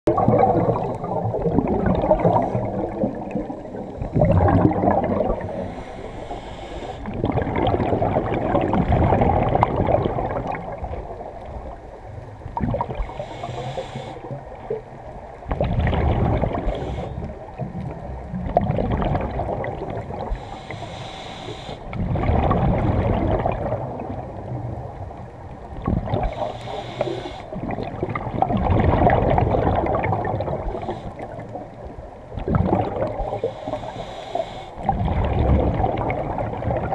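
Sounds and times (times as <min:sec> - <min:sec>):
rush of bubbles: 0:00.1 - 0:05.8, 0:07.0 - 0:11.7, 0:12.6 - 0:13.3, 0:15.5 - 0:20.5, 0:21.9 - 0:25.0, 0:25.7 - 0:26.5, 0:27.5 - 0:31.4, 0:32.3 - 0:33.8, 0:34.8 - 0:36.9
regulator hissing on inhale: 0:05.4 - 0:07.2, 0:13.0 - 0:14.4, 0:16.6 - 0:17.4, 0:20.3 - 0:22.0, 0:26.2 - 0:27.6, 0:30.6 - 0:31.5, 0:33.2 - 0:34.9.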